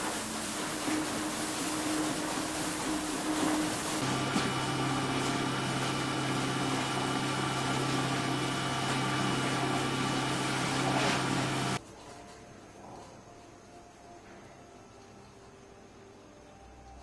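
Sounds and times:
low motor hum: 0.8 - 11.8.

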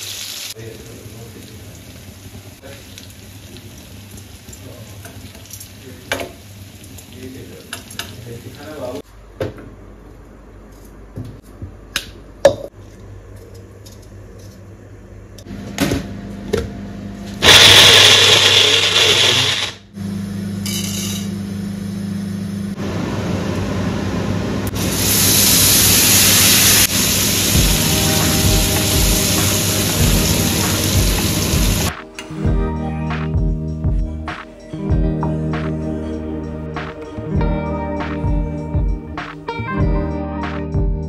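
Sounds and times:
sizzling hiss in hot oil: 0.0 - 9.0, 24.7 - 31.9
mixer grinder motor: 17.4 - 20.0.

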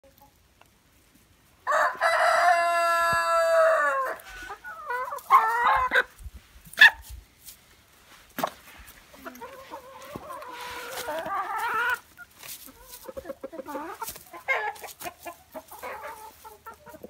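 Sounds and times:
rooster crowing: 1.6 - 4.2
chicken calls: 1.6 - 7.2, 8.4 - 17.0.

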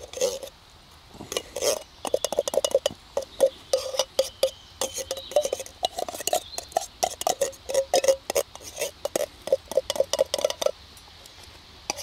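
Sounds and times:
metallic clinks on camping pot: 1.2 - 10.8
wooden stick knocking on tin can: 1.3 - 10.8.

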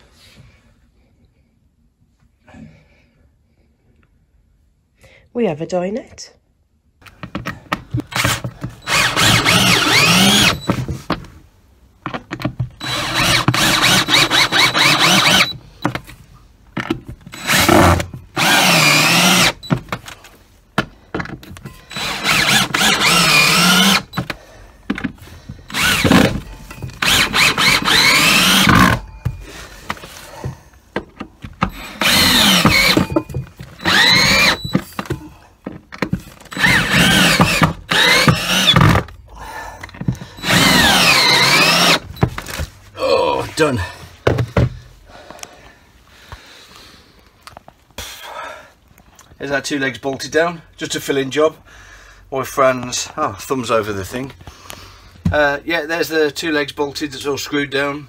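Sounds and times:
cordless drill driving screws: 8.0 - 10.8, 12.8 - 15.6, 17.3 - 19.9, 21.8 - 24.4, 25.7 - 29.1, 31.6 - 35.1, 36.4 - 39.1, 40.4 - 42.6.

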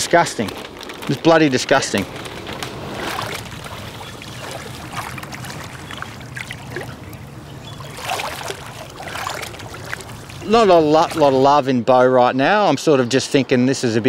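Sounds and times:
river water splashing and trickling: 0.1 - 11.7
person wading through water: 2.7 - 11.6.

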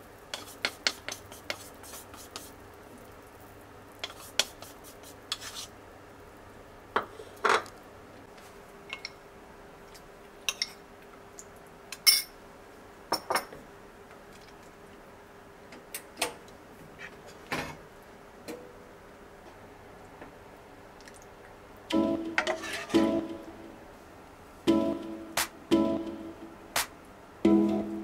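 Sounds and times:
faint steady hum: 0.0 - 28.0
ladle scraping saucepan: 22.4 - 23.0.

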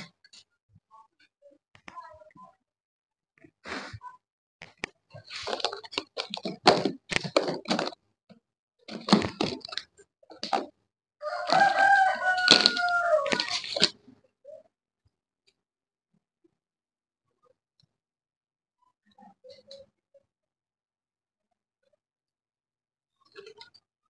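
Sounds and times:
scrabbling against plastic: 5.2 - 8.0, 8.9 - 10.8, 11.4 - 14.0
knocks on plastic baskets: 6.2 - 8.0
rooster crowing: 11.2 - 13.9.

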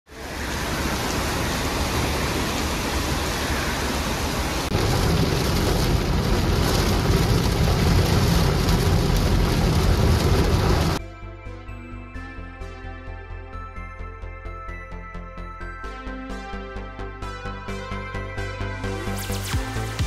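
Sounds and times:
rain falling: 0.1 - 11.0
deep rumble: 4.7 - 11.0.

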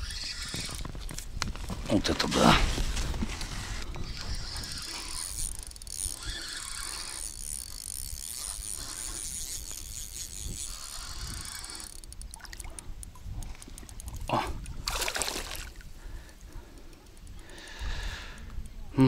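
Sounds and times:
fishing reel cranking: 0.0 - 1.3, 3.2 - 18.7
water around a boat: 0.0 - 19.0
wind: 0.0 - 19.0.

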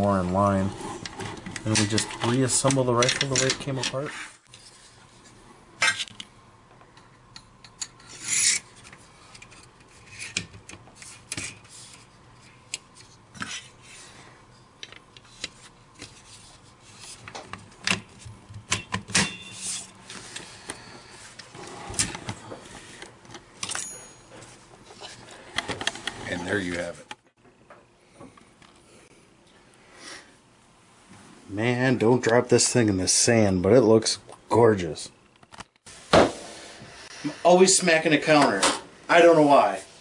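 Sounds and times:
metal parts scraping: 7.8 - 8.9.

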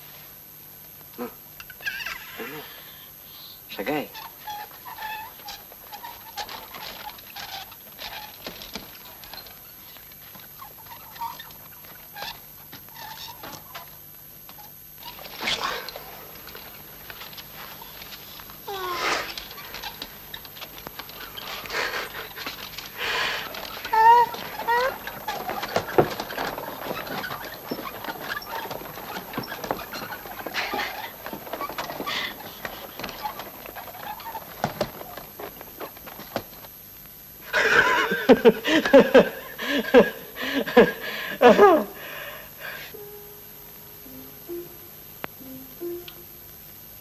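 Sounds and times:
small animals squeaking: 4.1 - 8.3, 10.4 - 14.0, 18.7 - 36.0.

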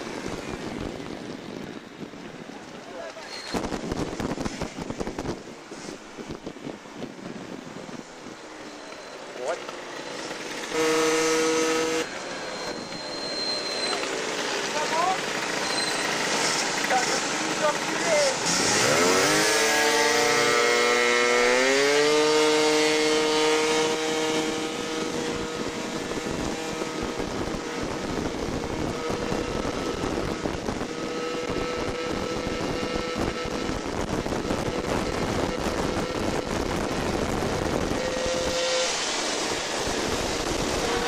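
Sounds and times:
wind noise on microphone: 0.0 - 8.8, 18.4 - 41.0
scooter engine revving: 9.7 - 12.2, 12.8 - 41.0.

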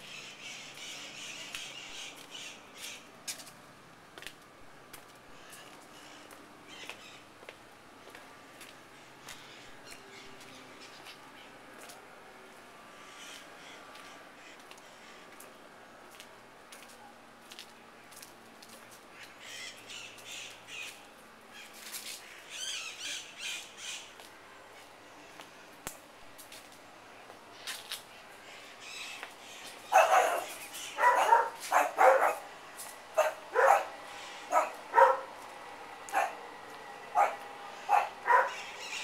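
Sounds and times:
faint high chirping calls: 19.2 - 25.4, 37.2 - 39.0.

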